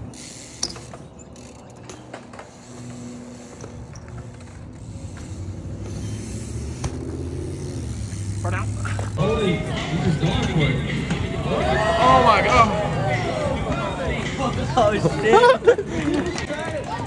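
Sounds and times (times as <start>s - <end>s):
bike creaks and clicks: 0.0s - 9.4s, 15.6s - 17.0s
bike rolling on concrete: 0.0s - 17.0s.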